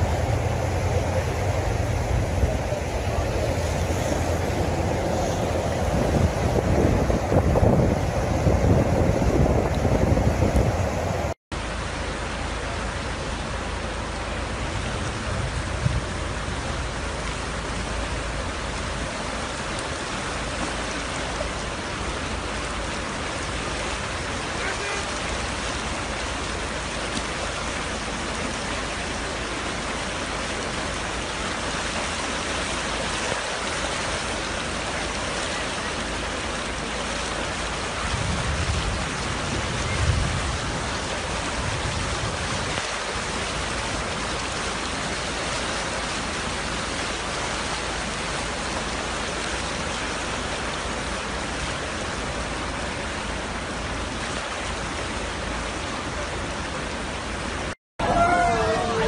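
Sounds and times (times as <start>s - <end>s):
low rumble: 0.0s - 11.4s
flood water rushing: 0.0s - 59.0s.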